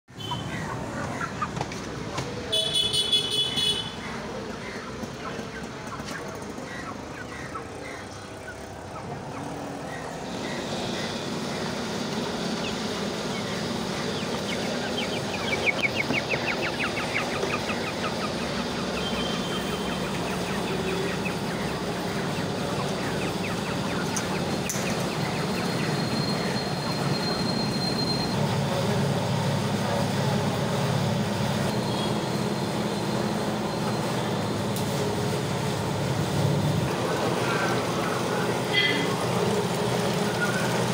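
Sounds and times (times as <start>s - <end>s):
caged birds chirping: 0.1s - 40.9s
low machine hum: 6.7s - 32.1s.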